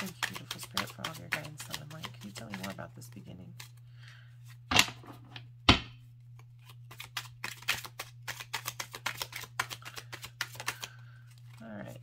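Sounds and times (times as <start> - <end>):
cards clicking while shuffled: 0.0 - 2.8, 6.4 - 11.6
steady low hum: 0.0 - 12.0
card deck knocking: 5.7 - 6.0.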